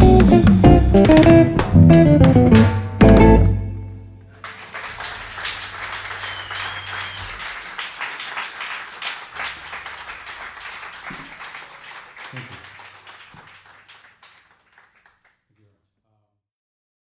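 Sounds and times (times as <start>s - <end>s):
audience applauding: 4.3s - 15.3s
short whistle: 6.1s - 8.5s.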